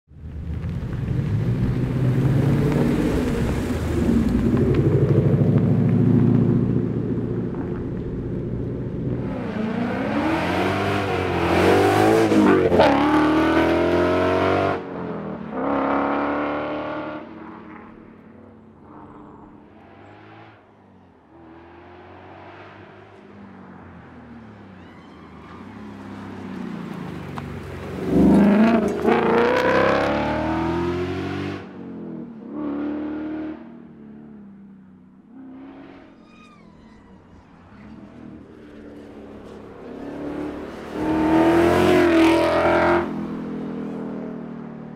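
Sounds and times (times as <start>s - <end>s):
rally car accelerating past: 26.1s - 33.7s, 35.4s - 43.2s.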